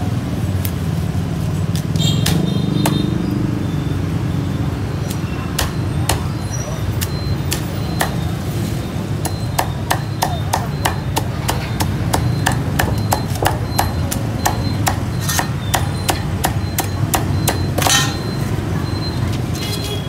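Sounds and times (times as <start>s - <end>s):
street traffic hum: 0.0s - 20.0s
cleaver chopping meat: 1.8s - 3.2s, 5.0s - 8.4s, 9.1s - 18.2s.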